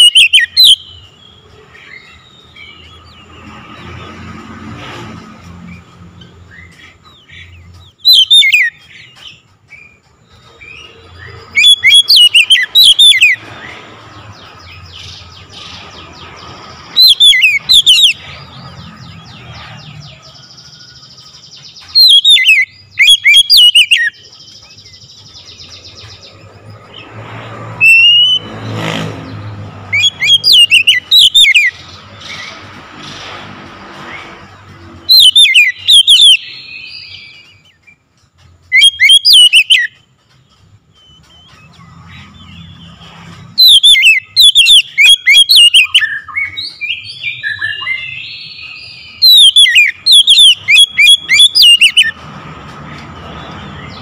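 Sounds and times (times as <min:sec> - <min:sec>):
bird singing whistles: 0:00.0 - 0:01.1, 0:08.0 - 0:10.0, 0:10.6 - 0:13.4, 0:17.0 - 0:18.2, 0:20.8 - 0:24.3, 0:27.8 - 0:28.5, 0:29.9 - 0:31.9, 0:35.1 - 0:37.8, 0:38.7 - 0:40.0, 0:43.6 - 0:52.2.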